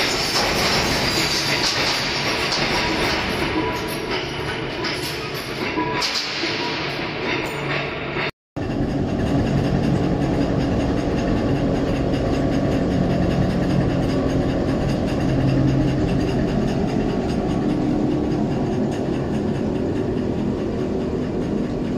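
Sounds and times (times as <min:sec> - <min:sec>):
hammer mill crushing metal: 0:00.0 - 0:08.1.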